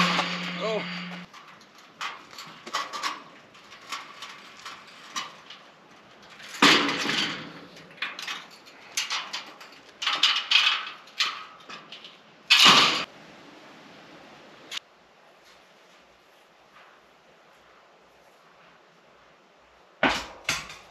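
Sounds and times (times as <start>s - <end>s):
objects knocking and clattering: 0.0s - 13.1s, 20.0s - 20.9s
rattling clatter: 0.0s - 13.1s.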